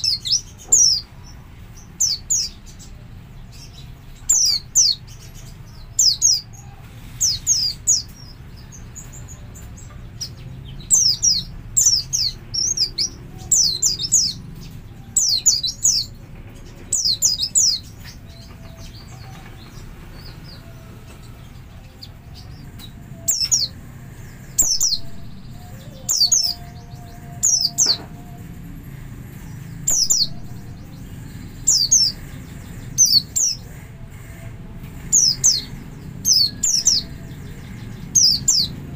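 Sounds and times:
bird chirping: 0.0s - 38.9s.

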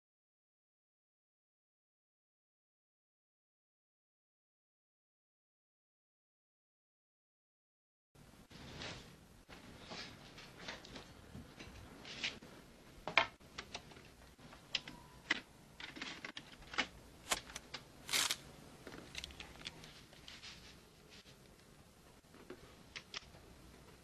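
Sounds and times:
gear rustling: 17.2s - 18.4s.

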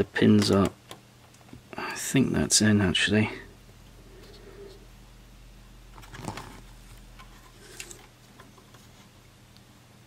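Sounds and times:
circuit board handling rustle: 5.9s - 9.2s.

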